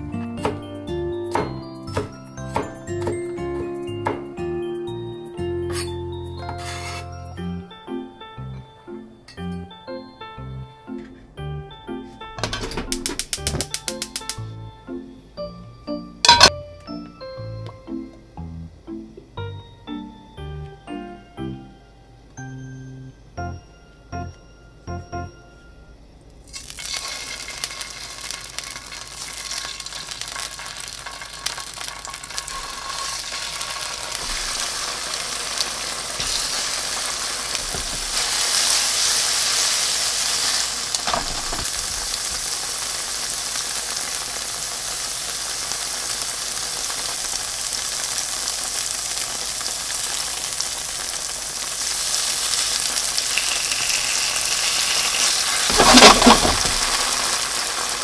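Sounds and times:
tofu sizzling in hot oil: 0:26.5 - 0:58.0.

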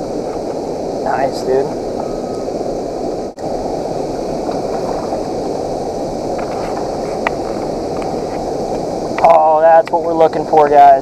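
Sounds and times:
water rushing over spillway: 0:00.0 - 0:11.0.

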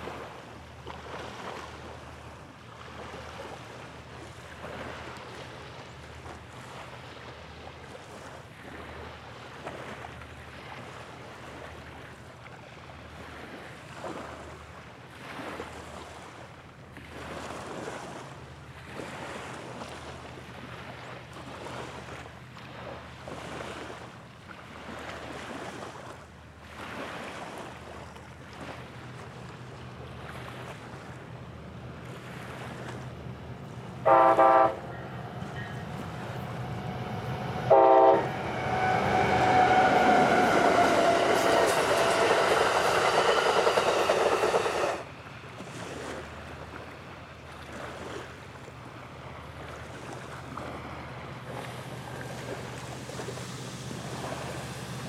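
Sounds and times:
small waves lapping: 0:00.0 - 0:55.0
wind buffeting microphone: 0:34.6 - 0:46.0.

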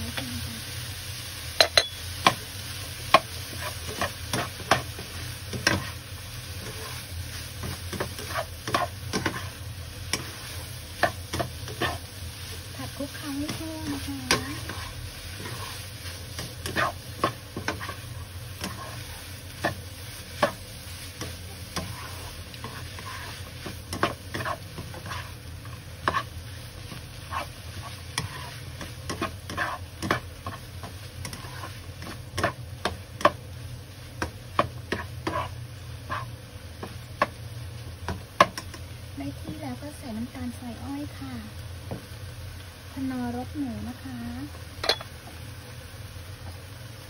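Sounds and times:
food sizzling: 0:00.0 - 0:47.0
spatula scraping wok: 0:01.6 - 0:37.4.

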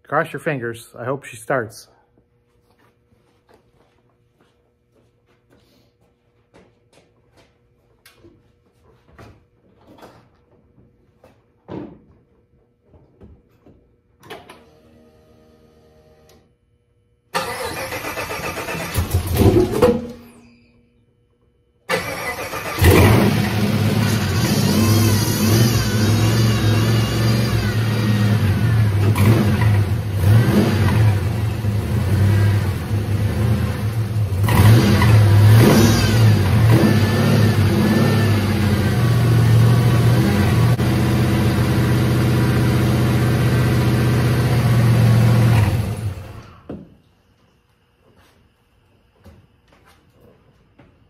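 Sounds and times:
car engine starting and revving: 0:21.9 - 0:46.5.

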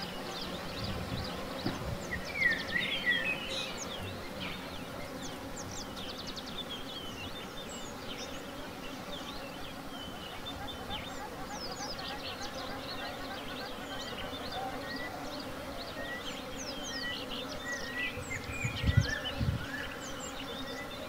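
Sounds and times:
bees humming: 0:00.0 - 0:21.0
small birds chirping: 0:00.0 - 0:21.0.

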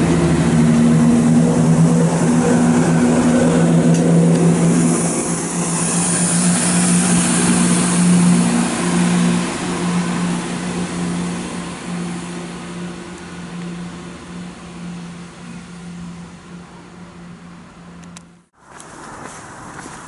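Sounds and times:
train rushing hiss: 0:00.0 - 0:13.4
diesel train engine drone: 0:00.0 - 0:20.0.

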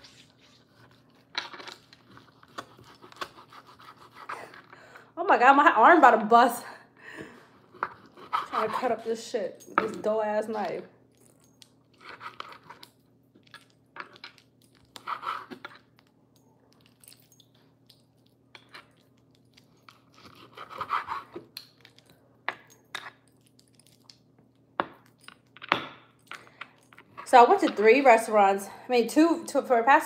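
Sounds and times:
knife sawing through meat: 0:02.4 - 0:04.6, 0:07.9 - 0:09.0, 0:20.2 - 0:21.4.

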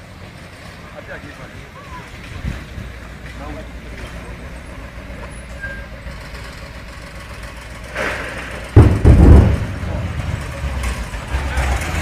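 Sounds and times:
artillery explosion boom: 0:08.0 - 0:10.3.

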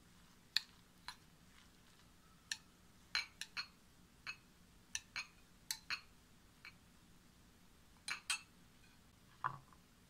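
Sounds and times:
fork clinking against glass bowl: 0:02.3 - 0:04.4, 0:08.1 - 0:09.0.

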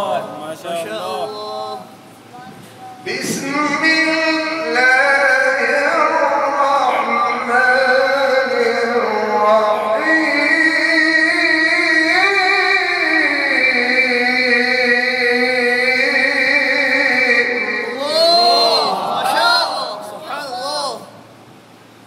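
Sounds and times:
man reciting melodically into microphone: 0:00.0 - 0:02.0, 0:03.0 - 0:21.2.

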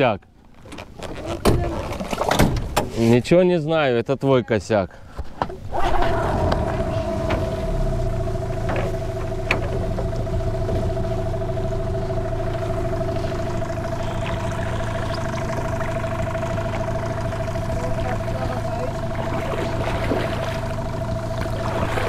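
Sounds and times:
motorboat engine droning: 0:05.5 - 0:22.0.

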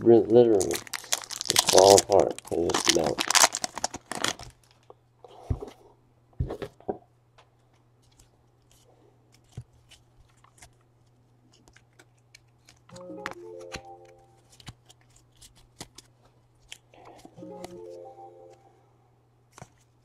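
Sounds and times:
foil wrappers crinkling and tearing: 0:00.4 - 0:04.8.

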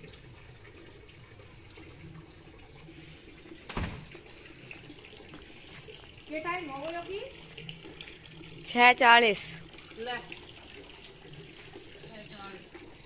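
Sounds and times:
water pouring into plastic bucket: 0:00.0 - 0:13.0
thump: 0:03.7 - 0:04.1.

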